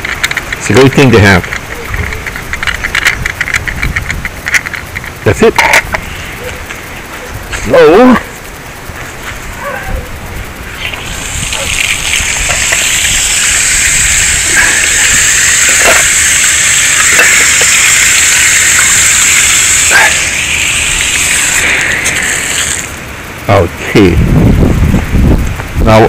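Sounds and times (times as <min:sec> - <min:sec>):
hose nozzle spraying water: 0:10.7 - 0:23.1.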